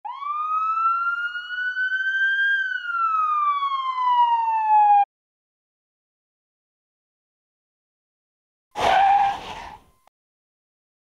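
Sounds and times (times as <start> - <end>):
siren wail: 0.0 - 5.1.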